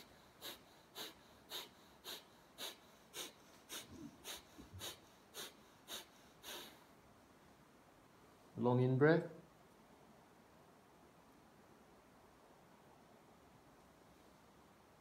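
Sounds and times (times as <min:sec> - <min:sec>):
forceful breaths through nose: 0:00.0 - 0:07.0.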